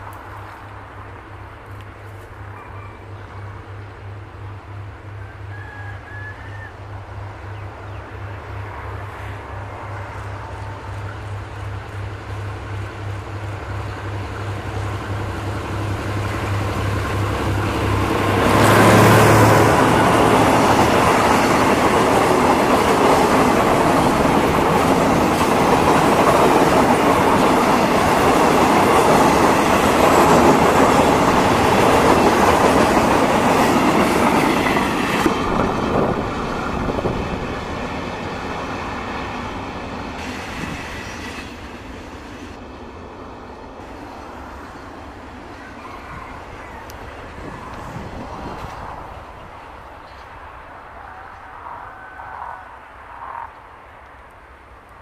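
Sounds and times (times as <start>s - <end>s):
locomotive engine hum: 0.0s - 55.0s.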